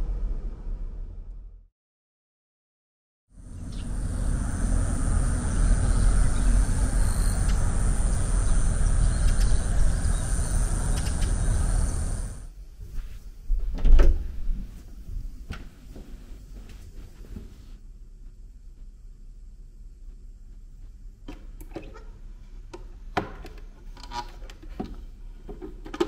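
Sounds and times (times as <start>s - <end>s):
thin high whine: 3.4s - 12.5s
low rumble and hiss: 3.4s - 26.0s.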